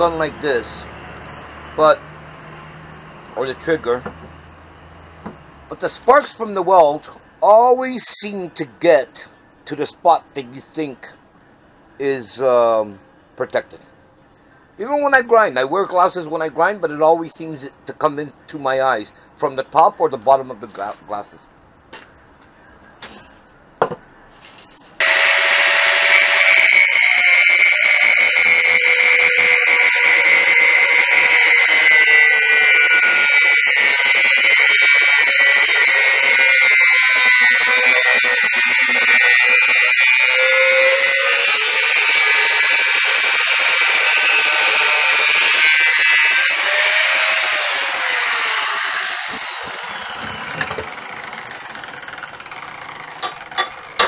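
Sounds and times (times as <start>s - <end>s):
angle grinder grinding steel: 25.0s - 54.0s.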